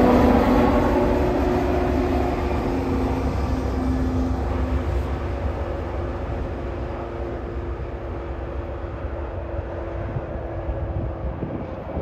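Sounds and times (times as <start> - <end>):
diesel locomotive engine drone: 0.0 - 12.0
held engine tone: 0.0 - 12.0
train rumble: 0.0 - 12.0.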